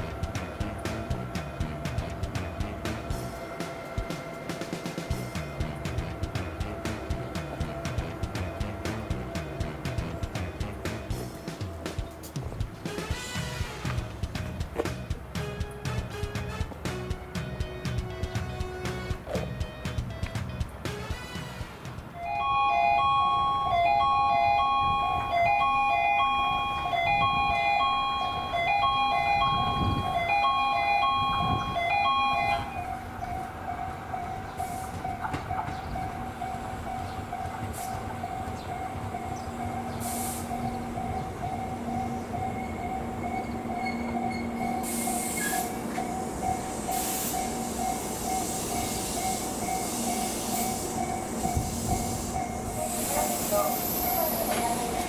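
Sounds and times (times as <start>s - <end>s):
train approaching: 0.0s - 55.0s
electronic chime melody: 22.2s - 35.2s, 46.0s - 53.2s
electronic warning bell ringing: 22.2s - 55.0s.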